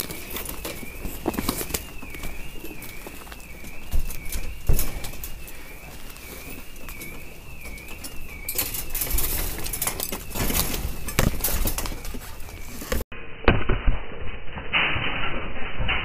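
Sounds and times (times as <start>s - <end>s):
intruder alarm warbling: 0.0s - 12.6s
branches crackling and rustling: 0.0s - 13.0s.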